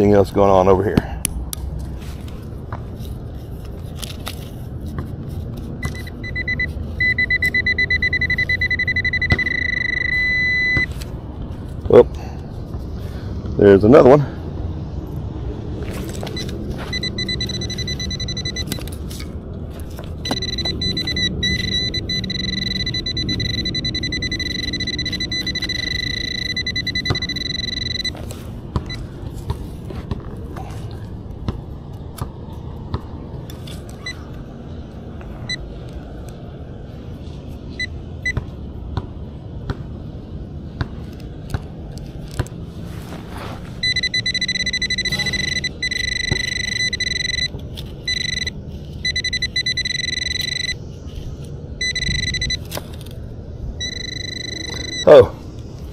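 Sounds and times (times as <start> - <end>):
metal detector high tone: 5.8 - 10.9, 16.4 - 18.8, 20.2 - 28.2, 43.8 - 50.8, 51.8 - 52.6, 53.8 - 55.3.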